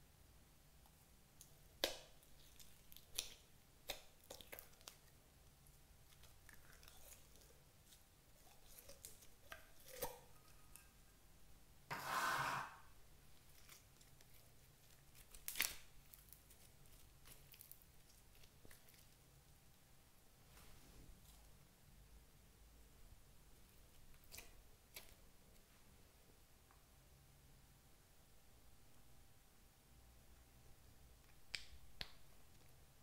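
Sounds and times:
slime squelch: 0.8 - 11.0, 13.3 - 19.8.

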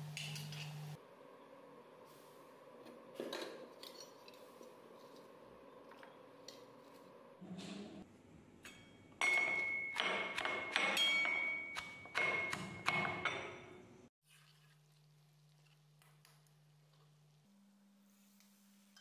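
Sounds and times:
pestle pounding in metal mortar: 9.2 - 13.5.

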